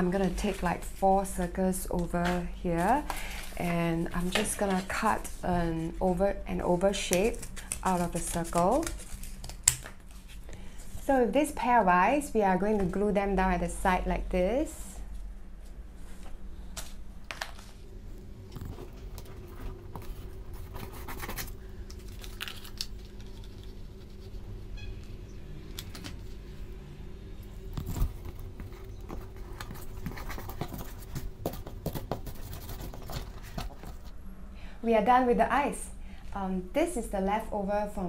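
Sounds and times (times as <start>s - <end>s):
low steady hum: 0.0s - 38.0s
cardboard scraping and rustling: 18.5s - 24.4s, 27.6s - 34.1s.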